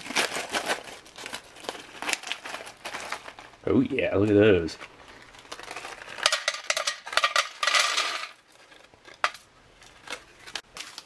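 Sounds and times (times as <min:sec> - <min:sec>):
peanuts clattering onto metal tray: 0:06.1 - 0:08.4.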